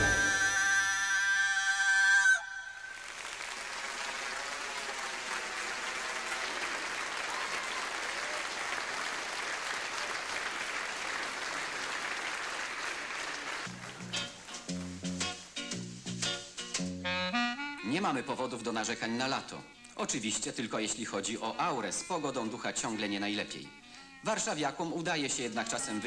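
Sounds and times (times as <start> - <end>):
band tune with bass line: 0.0 - 0.5
audience applauding: 2.8 - 15.0.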